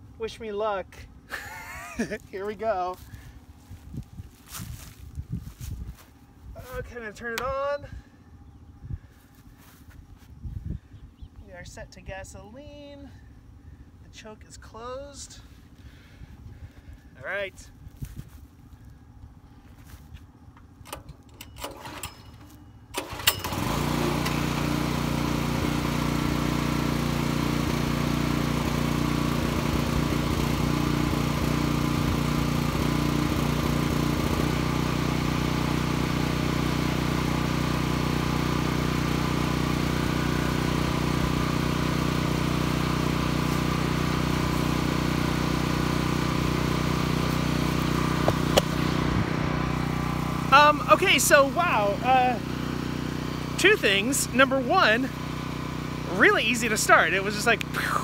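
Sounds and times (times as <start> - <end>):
generator engine pull-started: 20.4 - 58.0.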